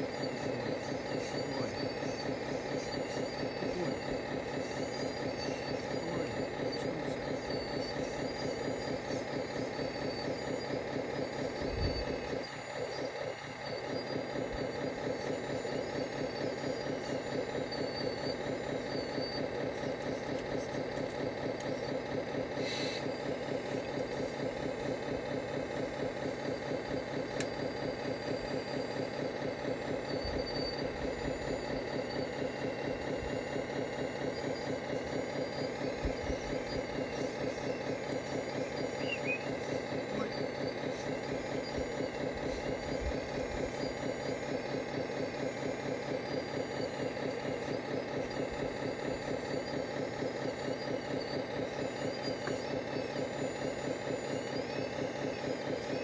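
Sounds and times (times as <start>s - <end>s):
model excavator pulsing hum: 0.0s - 56.0s.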